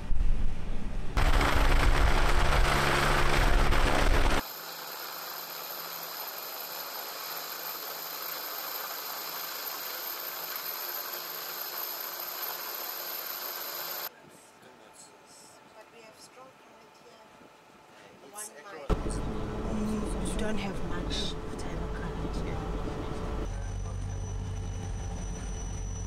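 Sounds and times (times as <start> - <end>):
loud mechanical rumbling: 0.0 - 4.4, 18.9 - 26.0.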